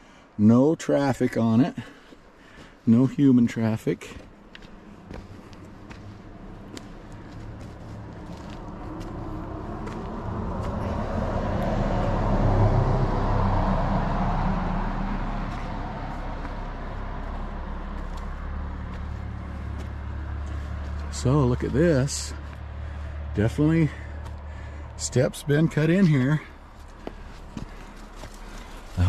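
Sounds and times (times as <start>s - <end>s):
car driving past: 5.0s - 25.4s.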